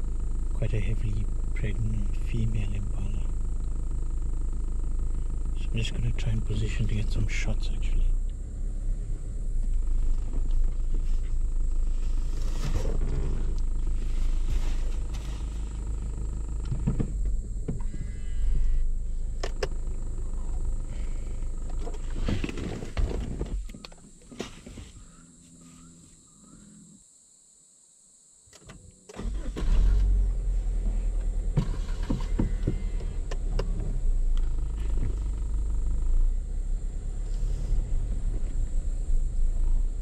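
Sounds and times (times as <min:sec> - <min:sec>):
car engine rumbling: 0:00.0 - 0:27.0, 0:28.6 - 0:40.0
sharp clicks: 0:19.3 - 0:20.0.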